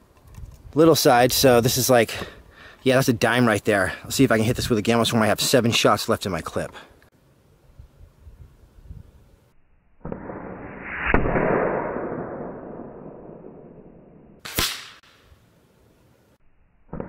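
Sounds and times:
air rifle shot rush: 0:10.0 - 0:13.7, 0:14.4 - 0:15.3.

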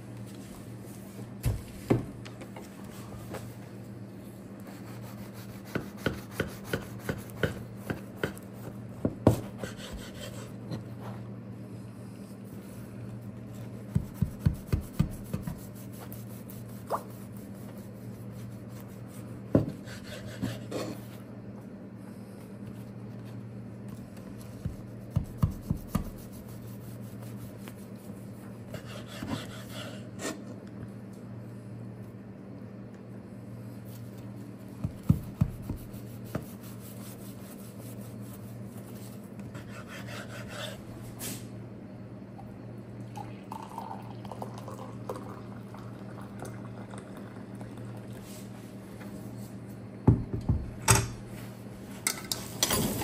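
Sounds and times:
knife sawing through bread crust: 0:09.5 - 0:10.5, 0:28.7 - 0:30.4, 0:39.5 - 0:40.8.

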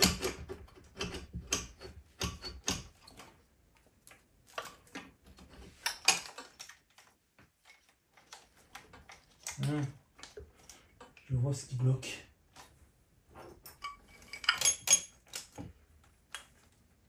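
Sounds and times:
metallic clicks and knocks: 0:13.6 - 0:15.8.

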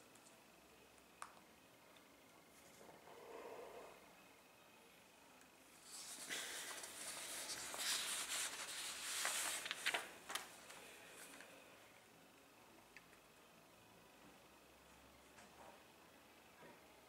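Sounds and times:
paper rustling: 0:05.8 - 0:11.5.

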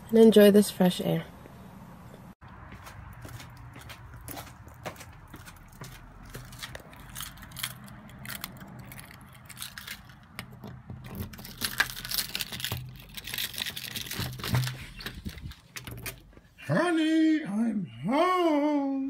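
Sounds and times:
keys jangling: 0:06.4 - 0:11.8
key turning in door lock: 0:06.9 - 0:16.3.

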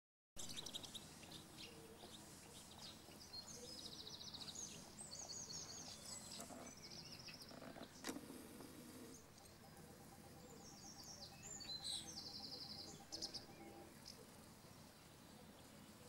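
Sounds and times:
bird trills: 0:00.4 - 0:14.4
faint outdoor background: 0:00.4 - 0:16.0
songbirds chirping: 0:00.4 - 0:16.0.

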